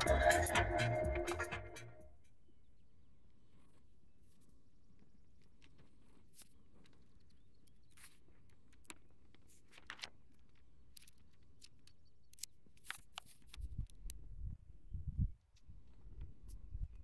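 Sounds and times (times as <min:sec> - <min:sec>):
book pages rustling: 0:05.5 - 0:11.8.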